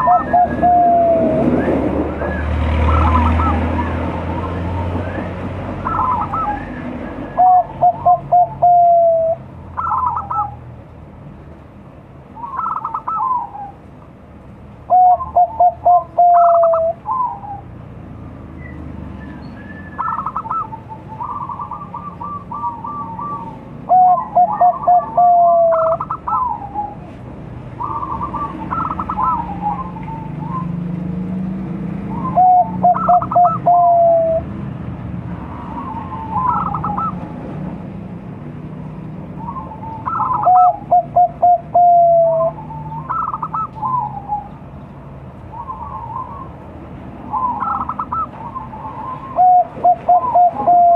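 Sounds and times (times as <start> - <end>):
dove cooing: 0.0 - 10.6, 12.4 - 13.8, 14.9 - 17.8, 20.0 - 27.2, 27.8 - 30.7, 32.1 - 34.5, 35.5 - 37.2, 39.4 - 44.6, 47.3 - 50.9.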